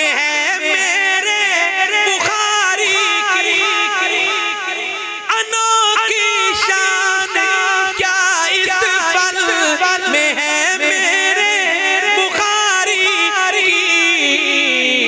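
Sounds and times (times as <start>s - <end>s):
man singing through microphone: 0.0s - 15.0s.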